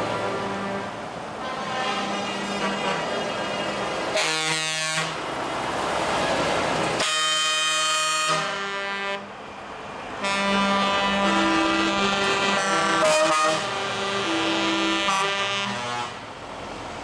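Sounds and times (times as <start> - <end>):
truck air horn blasts: 0.1 - 5.2, 7.0 - 9.3, 10.2 - 16.3.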